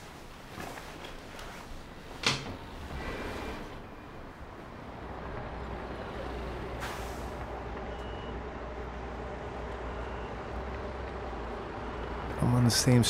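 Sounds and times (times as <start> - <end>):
traffic rumble: 0.3 - 13.0
air brake hiss: 6.8 - 7.4.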